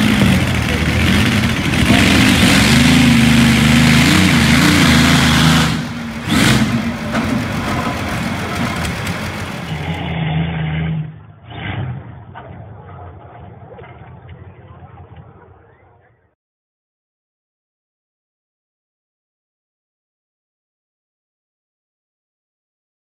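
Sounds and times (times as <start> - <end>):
aircraft engine revving: 0.0 - 12.4.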